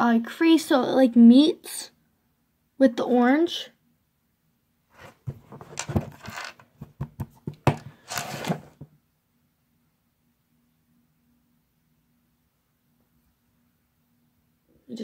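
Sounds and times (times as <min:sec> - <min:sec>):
handling clicks and rustles: 0:05.0 - 0:08.8.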